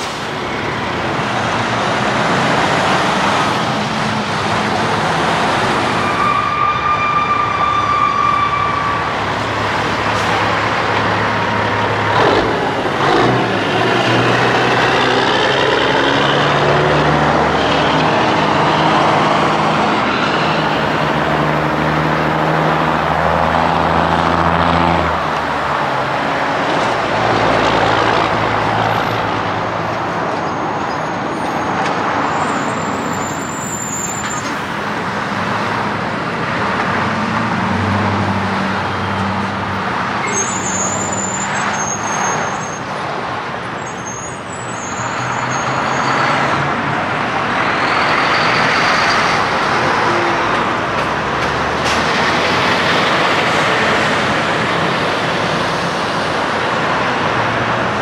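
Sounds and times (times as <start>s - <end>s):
trucks driving past: 0.0s - 58.0s
brief high squeals: 40.2s - 42.8s.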